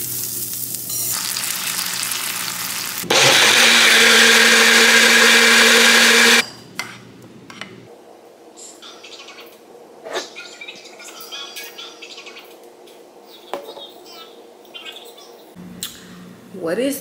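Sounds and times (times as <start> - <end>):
butter sizzling in frying pan: 0.0 - 3.1
blender running: 1.7 - 6.4.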